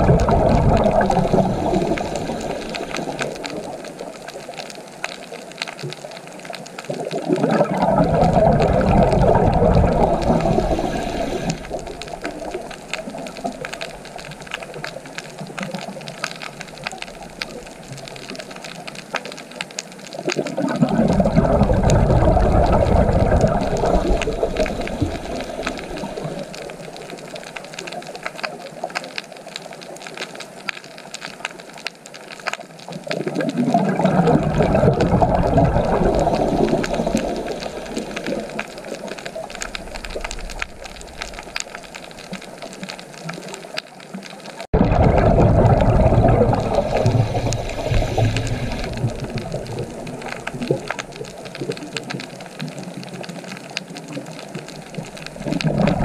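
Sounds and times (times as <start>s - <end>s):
crackling patter: 0.0s - 56.0s
rushing water: 0.0s - 56.0s.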